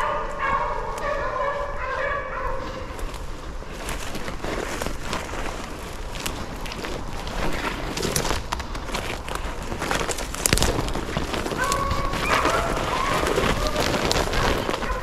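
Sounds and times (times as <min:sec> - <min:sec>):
beagles baying: 0:00.0 - 0:03.4, 0:11.2 - 0:15.0
footsteps through brush: 0:00.0 - 0:15.0.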